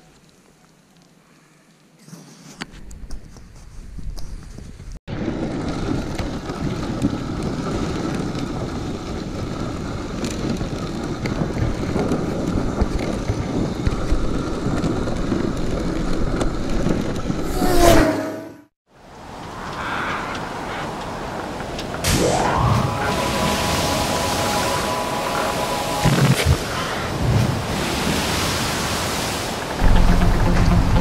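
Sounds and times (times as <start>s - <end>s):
sled runners rushing over snow: 0.0s - 17.9s
wind buffeting microphone: 2.9s - 17.9s.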